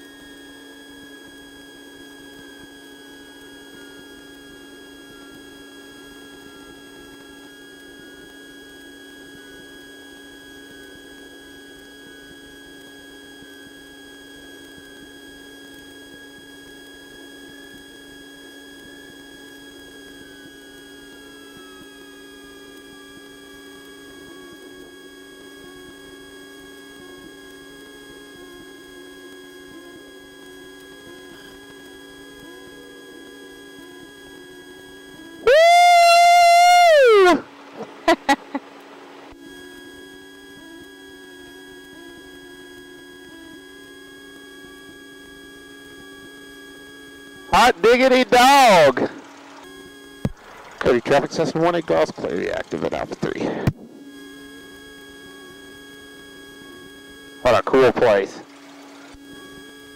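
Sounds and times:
aircraft cabin hum and whine: 30.8 - 39.6, 47.4 - 49.2, 50.3 - 54.1, 57.4 - 58.5.

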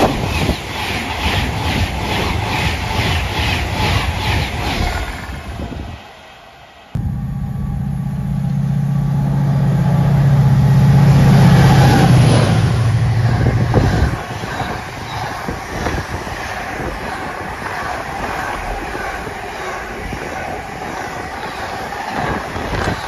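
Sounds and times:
train wagons rattling on track: 0.0 - 5.9, 9.7 - 23.0
locomotive engine drone: 7.0 - 23.0.

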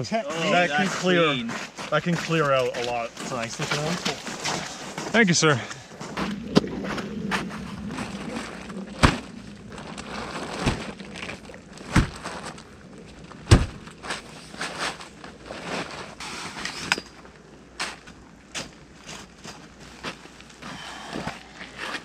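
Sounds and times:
fabric rustling and flapping: 6.0 - 16.6.

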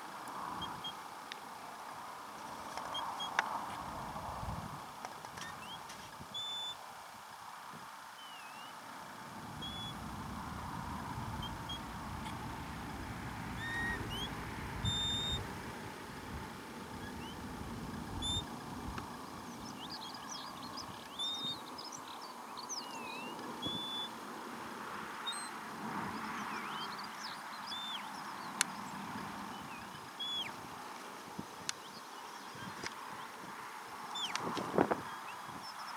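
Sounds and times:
wind rumbling on microphone: 3.6 - 6.4, 9.3 - 21.5, 34.3 - 35.7
high whistled chirps: 5.4 - 6.8, 8.2 - 8.8, 9.6 - 10.1, 13.5 - 15.5, 17.0 - 17.5, 18.2 - 18.5, 19.5 - 22.0, 22.7 - 24.2, 27.7 - 28.1, 29.6 - 30.6.

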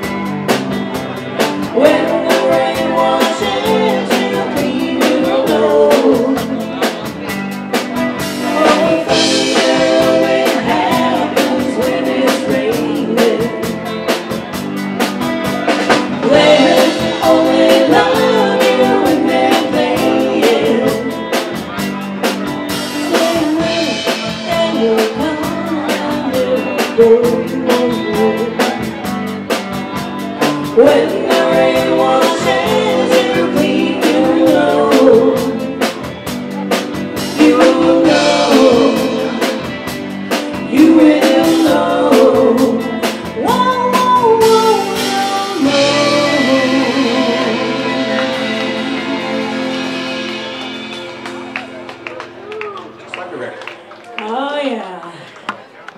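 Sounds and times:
drum kit beat: 0.0 - 52.8
electric guitars: 0.0 - 55.9
woman singing: 1.6 - 6.9, 8.4 - 14.1, 16.1 - 21.4, 22.8 - 29.0, 30.4 - 35.9, 37.2 - 50.2.

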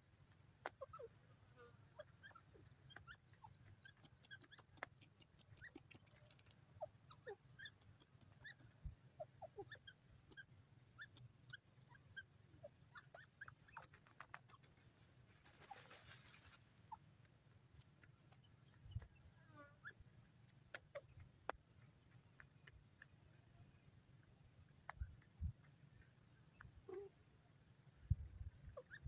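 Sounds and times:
faint bird chirps: 1.9 - 14.8, 23.4 - 29.0
brief rustle: 13.8 - 16.7.

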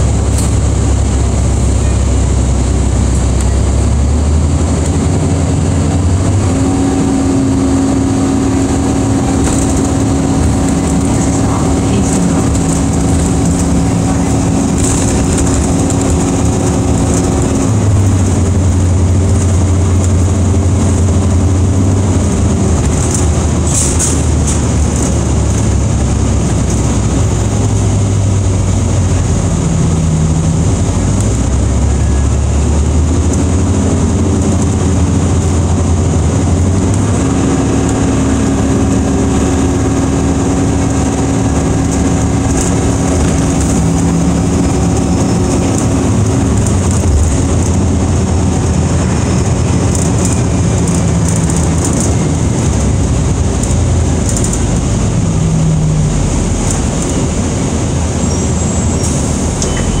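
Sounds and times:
bus engine and road rumble: 0.0 - 60.0
hum: 0.0 - 60.0
bus fittings rattling: 41.8 - 55.2.

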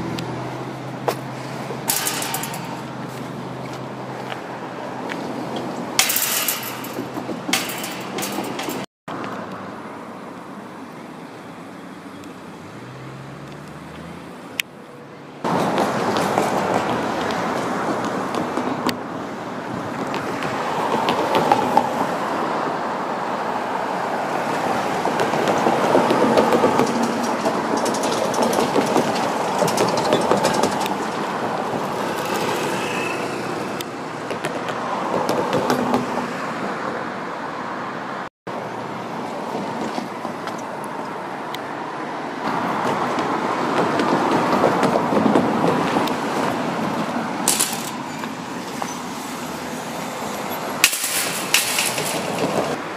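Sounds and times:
road traffic noise: 0.0 - 52.9
train wheels rumbling on rail: 1.0 - 8.9, 15.4 - 19.0, 24.8 - 33.4, 42.7 - 49.0, 50.3 - 52.8.

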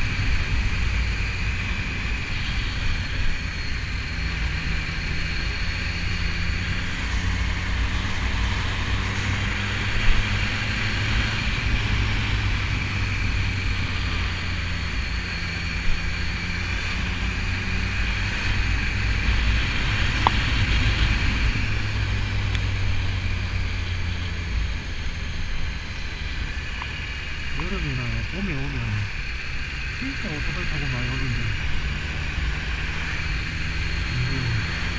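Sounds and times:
motorcycle engine droning: 0.0 - 34.9.

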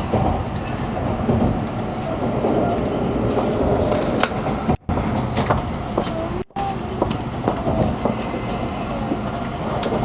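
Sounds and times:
train car rumble and rattle: 0.0 - 10.0
faint squeaks: 7.6 - 9.8.

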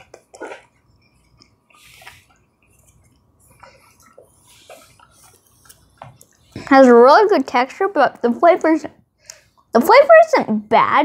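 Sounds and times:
person chewing wetly: 0.0 - 6.6.

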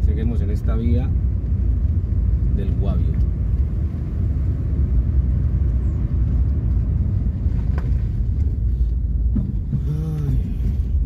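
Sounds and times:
car engine and tyres rumbling: 0.0 - 11.0.

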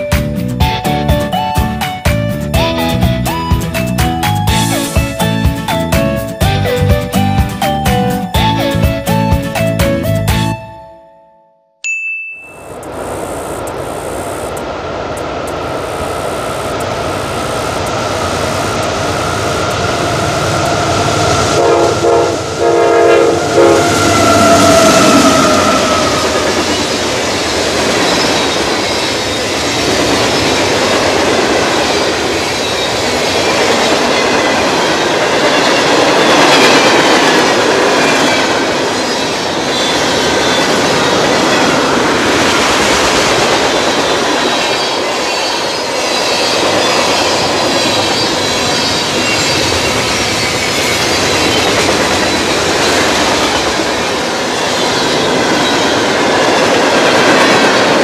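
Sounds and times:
train wheels clattering on rails: 23.4 - 58.0
wheels squealing: 38.1 - 56.7.

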